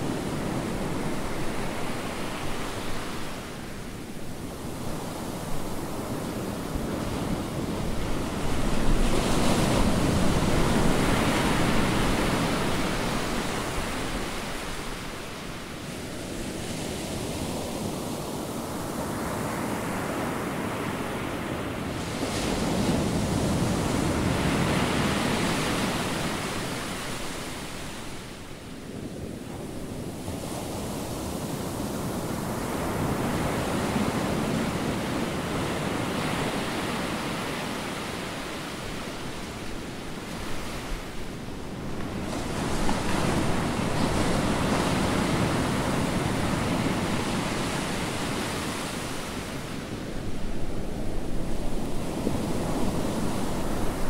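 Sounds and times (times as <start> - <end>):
waves breaking: 30.8 - 54.0.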